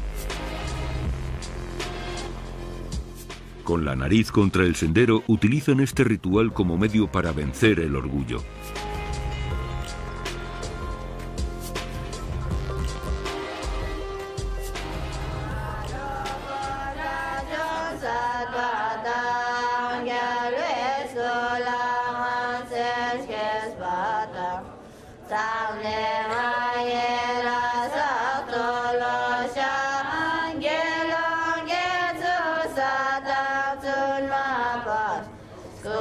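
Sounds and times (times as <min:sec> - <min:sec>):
women chanting in unison: 0:15.2 - 0:36.0.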